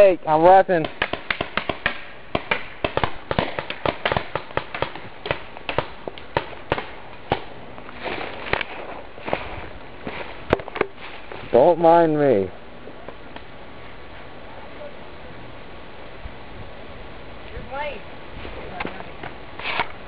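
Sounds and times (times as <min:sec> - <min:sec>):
paintball markers firing: 0:00.8 - 0:07.5.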